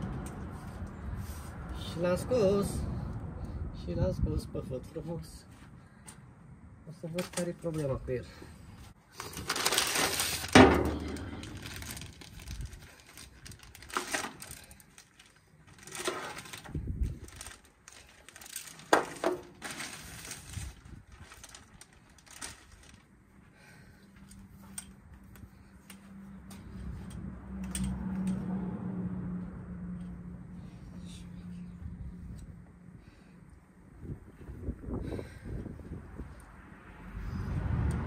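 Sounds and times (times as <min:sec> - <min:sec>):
plastic bag rustling: 0:09.1 - 0:23.2.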